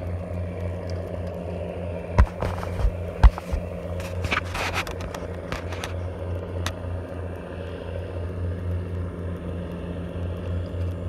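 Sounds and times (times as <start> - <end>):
low engine drone: 0.0 - 11.0.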